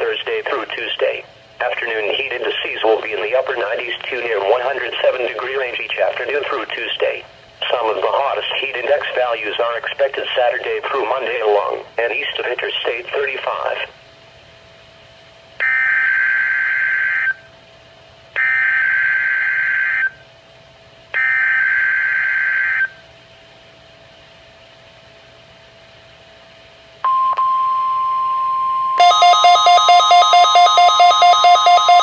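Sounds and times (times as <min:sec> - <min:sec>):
rapid pulsing alert beeps: 0:28.9 - 0:32.0.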